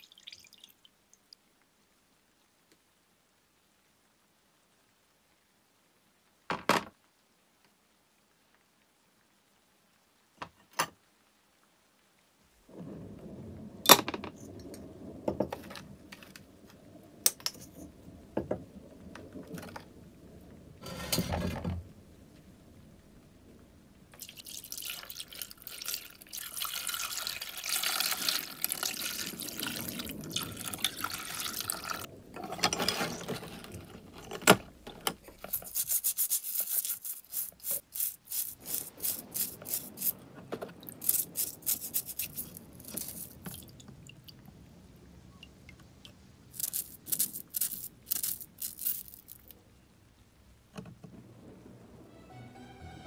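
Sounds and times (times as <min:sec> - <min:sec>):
water pouring into plastic tub: 0:00.0 - 0:00.9, 0:24.1 - 0:44.4, 0:46.5 - 0:49.5
scratchy scrubbing strokes: 0:35.2 - 0:40.2, 0:40.9 - 0:43.6.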